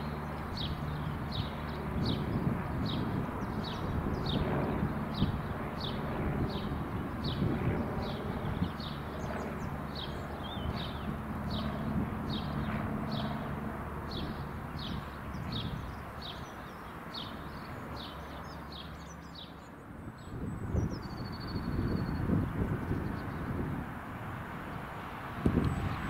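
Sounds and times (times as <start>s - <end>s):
small bird singing: 0.0s - 13.4s, 14.1s - 23.6s
distant train humming: 23.8s - 26.0s.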